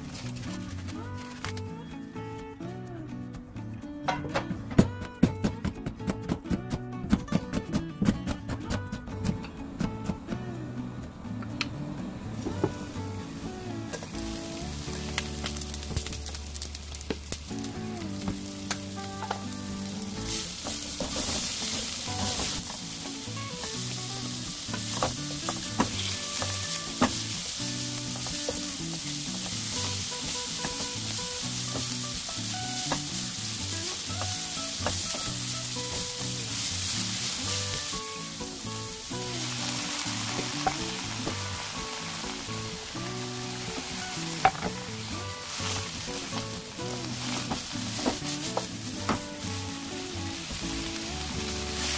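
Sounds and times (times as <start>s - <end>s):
light background music: 0.0s - 51.9s
meat sizzling in a wok: 12.4s - 51.9s.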